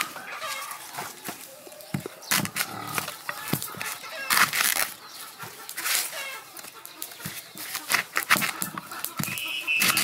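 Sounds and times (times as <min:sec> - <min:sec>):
chickens clucking: 0:00.0 - 0:10.0
corn husks rustling and tearing: 0:00.0 - 0:10.0.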